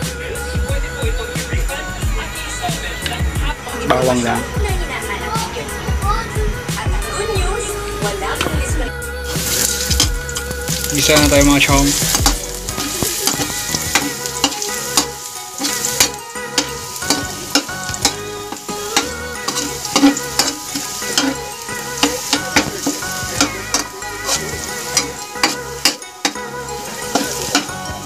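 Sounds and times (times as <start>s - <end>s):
garlic sizzling in oil: 9.2s - 28.0s
ladle scraping metal wok: 9.3s - 28.0s.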